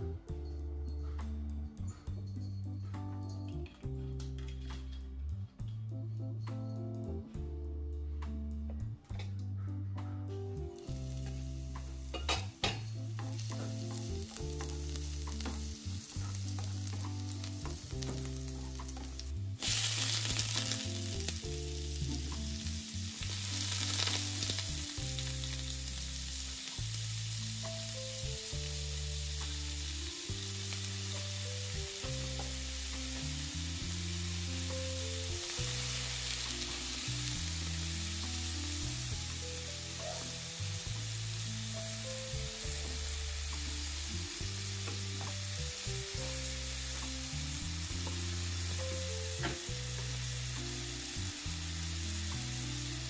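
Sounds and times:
soft background music: 0.0s - 53.0s
food sizzling in a frying pan: 10.8s - 53.0s.

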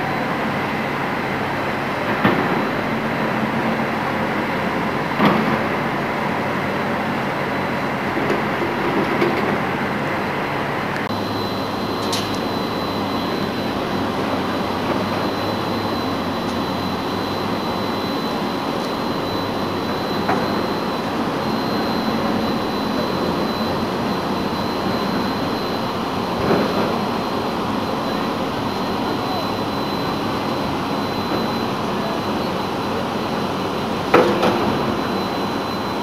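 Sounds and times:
rushing ship machinery noise: 0.0s - 36.0s
thin high whine: 11.0s - 36.0s.

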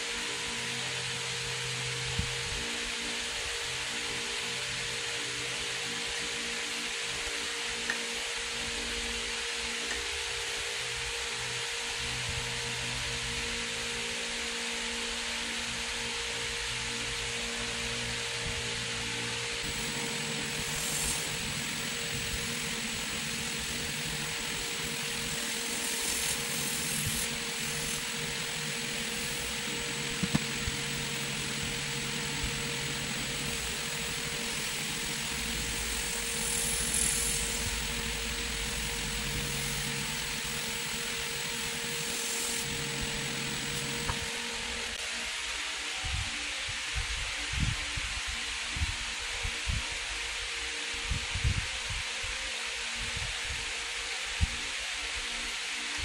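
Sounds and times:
wood lathe running: 19.6s - 45.0s.

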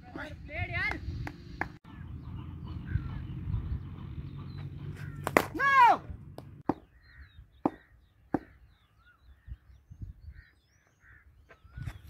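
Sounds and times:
small birds chirping: 0.5s - 5.4s, 6.4s - 12.0s
crow cawing: 5.0s - 5.3s.

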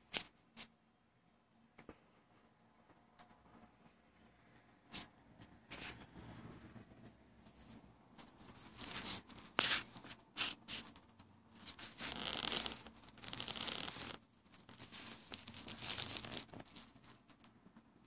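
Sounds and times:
scratchy rustling and crackling: 7.4s - 17.6s.

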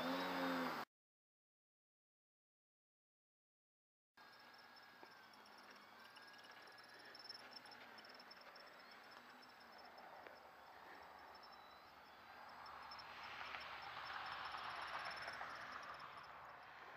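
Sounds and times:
crickets chirping: 4.2s - 16.9s.

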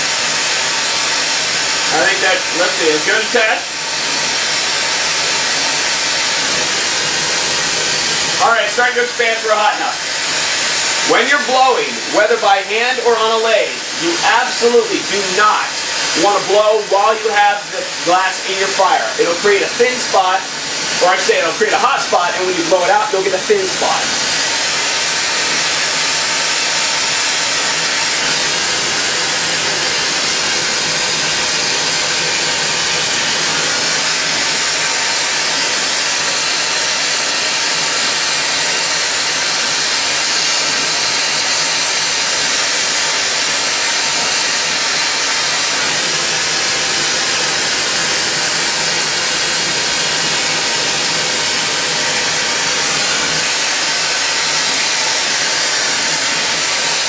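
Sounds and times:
torch flame hissing: 0.0s - 57.0s.

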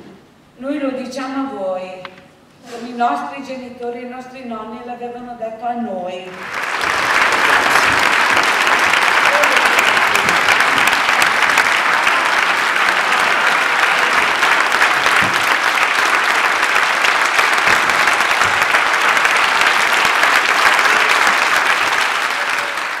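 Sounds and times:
audience applauding: 6.3s - 23.0s.

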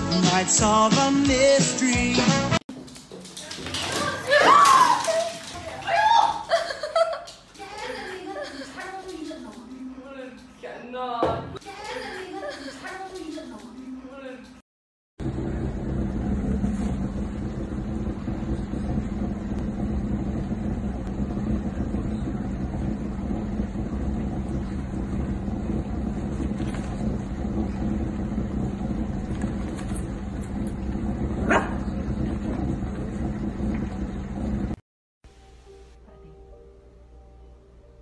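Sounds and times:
low droning hum: 15.2s - 34.8s
puppy barking: 31.4s - 31.9s.

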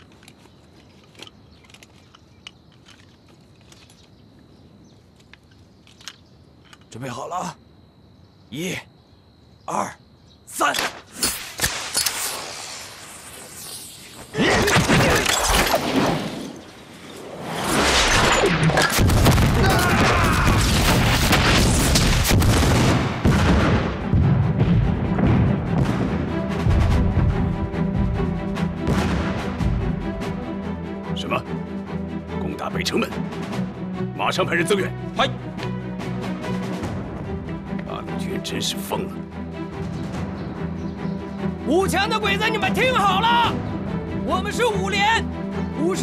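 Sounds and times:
small clicks: 5.2s - 7.0s
grenade explosions rumbling: 17.8s - 27.5s, 28.8s - 29.8s.

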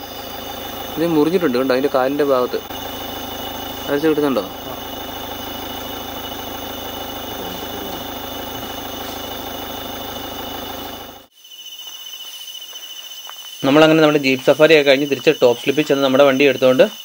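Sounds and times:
jeep engine idling: 0.0s - 11.3s
crickets chirring: 0.0s - 17.0s.

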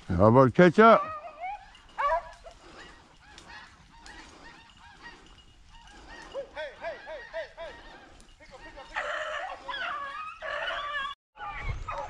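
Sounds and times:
hounds baying: 0.8s - 12.0s
dog barking rapidly: 2.0s - 4.4s.

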